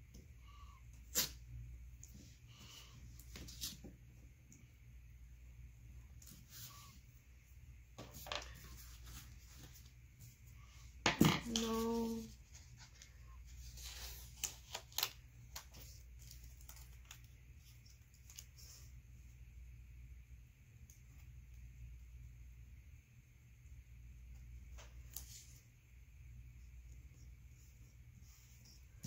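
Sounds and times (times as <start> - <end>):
paper pages rustling: 11.6 - 18.8.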